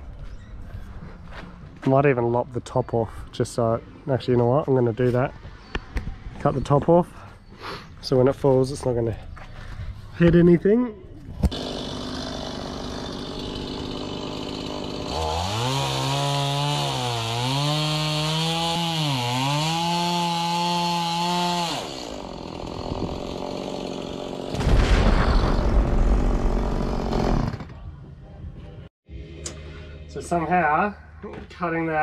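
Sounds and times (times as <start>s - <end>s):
chainsaw idling and cutting wood: 11.5s - 24.8s, 25.5s - 27.8s
loud rough rumbling: 24.5s - 27.8s.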